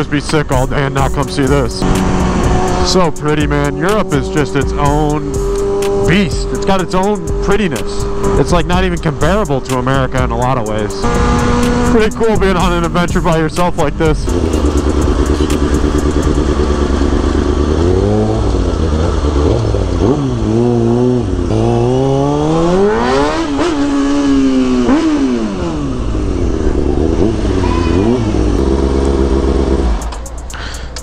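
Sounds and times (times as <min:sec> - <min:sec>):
motorcycle engine revving and idling: 0:00.0 - 0:31.0.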